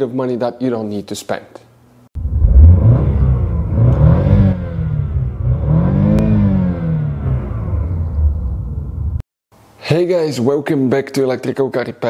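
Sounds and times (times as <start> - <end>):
car engine revving: 2.2 - 9.2.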